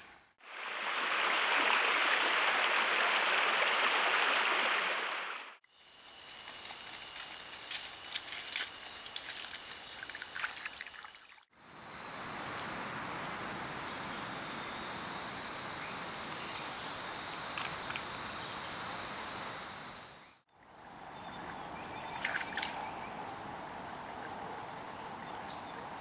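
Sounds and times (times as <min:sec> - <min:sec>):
high-pitched hiss: 0:11.6 - 0:20.4.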